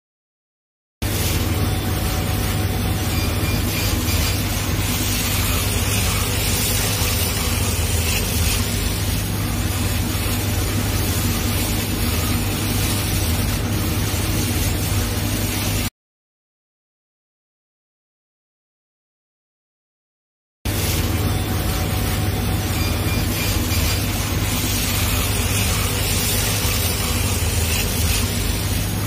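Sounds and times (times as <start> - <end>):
machine hum: 1.0 - 15.9, 20.7 - 29.0.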